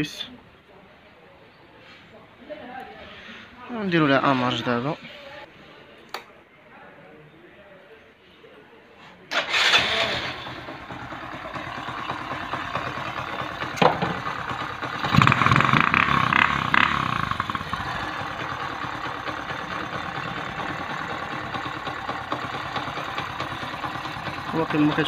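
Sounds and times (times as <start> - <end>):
small motorcycle engine idling: 9.4 - 25.0.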